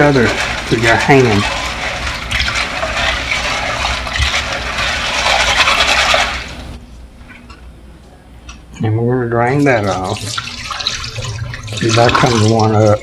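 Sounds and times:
beans rubbing in a pot of water: 0:00.0 - 0:06.8.

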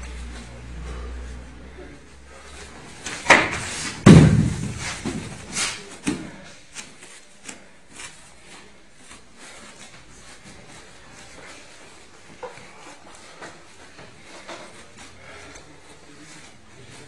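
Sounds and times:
body thudding on mats: 0:03.2 - 0:06.4
sharp smack: 0:03.3 - 0:05.1
bare feet tapping: 0:03.3 - 0:06.4.

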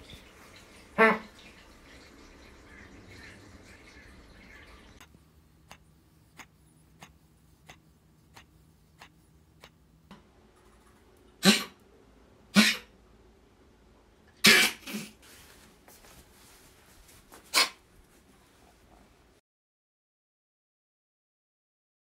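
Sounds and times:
dog coughing harshly: 0:11.4 - 0:11.8, 0:12.5 - 0:12.9, 0:14.4 - 0:15.2, 0:17.5 - 0:17.8.

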